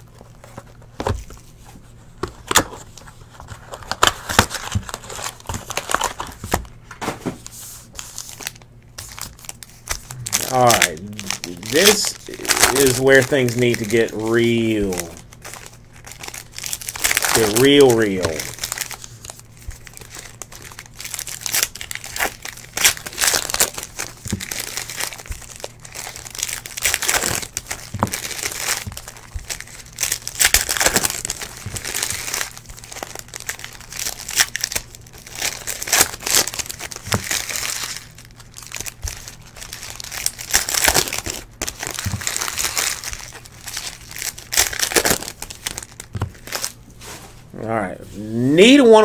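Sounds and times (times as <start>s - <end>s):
foil wrappers crinkling: 0.0s - 47.5s
steady low hum: 0.0s - 49.0s
packs ripped open: 8.2s - 46.7s.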